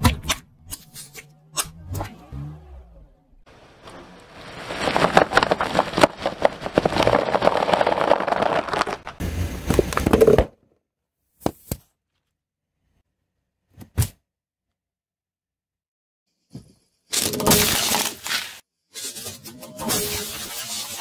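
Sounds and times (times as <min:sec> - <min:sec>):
tyre crushing plastic bag: 0:03.5 - 0:10.4, 0:17.2 - 0:18.6.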